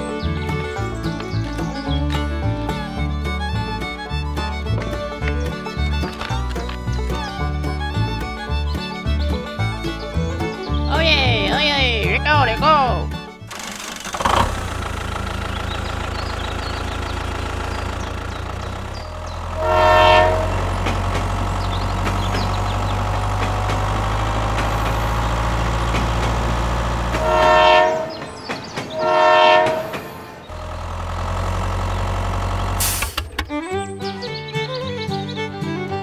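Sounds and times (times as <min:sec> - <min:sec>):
train horn blasts: 0:19.5 - 0:20.8, 0:27.1 - 0:28.3, 0:28.9 - 0:30.1.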